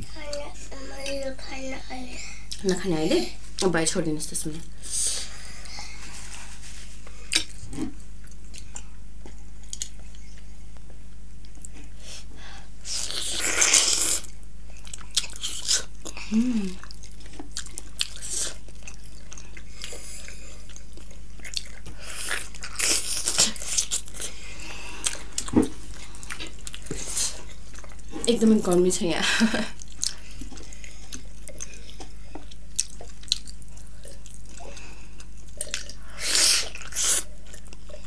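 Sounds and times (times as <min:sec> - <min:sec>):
person biting and chewing food: 0:07.3 - 0:10.2, 0:12.9 - 0:16.2, 0:16.8 - 0:24.4, 0:35.2 - 0:38.0.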